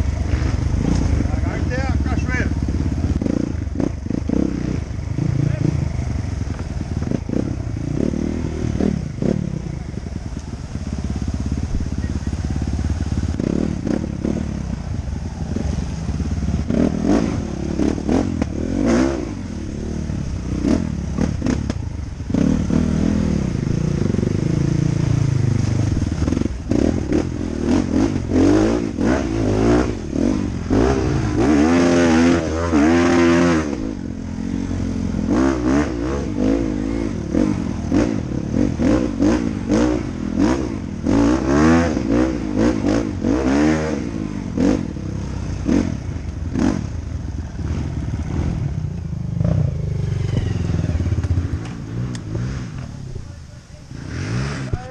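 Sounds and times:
dirt bike engine revving: 0.0 - 54.9.

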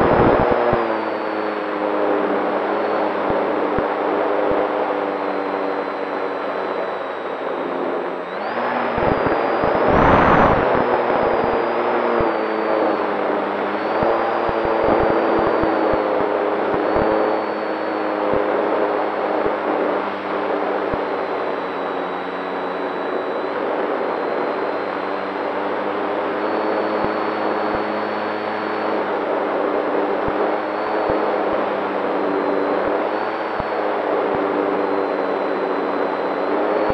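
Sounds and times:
electric motor and propeller whine: 0.0 - 36.9
wind rushing over microphone: 8.4 - 12.3.

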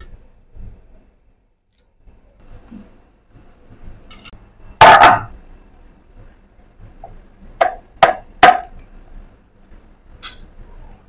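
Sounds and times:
sharp knocks: 7.0 - 8.7.

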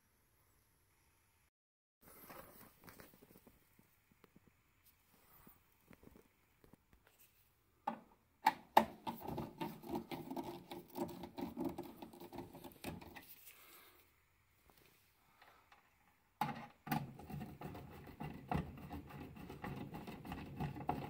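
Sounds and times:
rapid scratchy clicking: 17.1 - 21.0.

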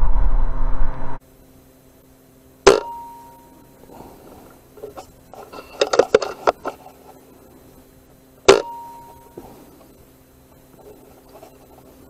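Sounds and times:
clicks and rustles: 3.8 - 7.8, 10.6 - 12.0.

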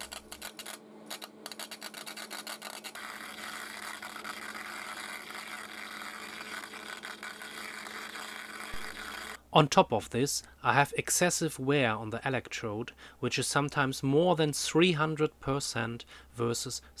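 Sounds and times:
electric sparks crackling under water: 0.0 - 9.4.

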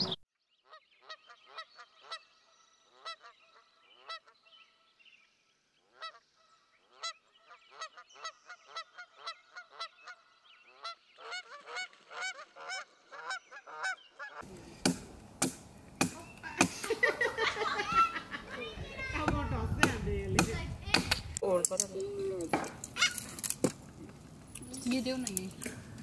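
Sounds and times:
geese honking: 0.0 - 4.4, 5.8 - 14.6, 22.9 - 23.4
knocks of wood worked by hand: 14.8 - 16.7, 19.2 - 21.3.

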